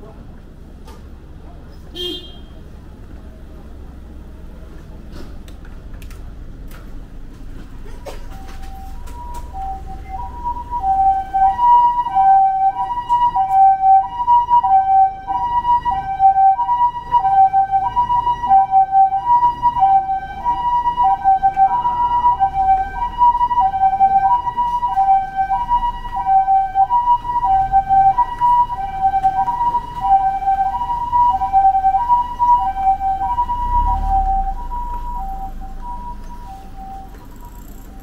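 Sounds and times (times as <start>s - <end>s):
low vehicle rumble: 0.0s - 38.0s
two-tone ambulance siren: 7.9s - 38.0s.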